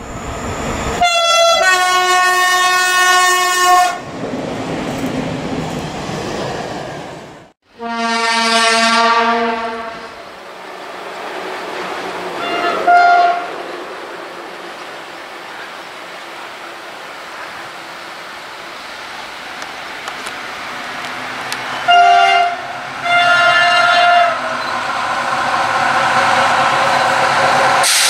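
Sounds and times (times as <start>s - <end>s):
railway rumble: 0.0s - 28.0s
train horn blast: 1.0s - 4.0s, 7.7s - 10.2s, 12.4s - 13.5s, 21.7s - 24.5s.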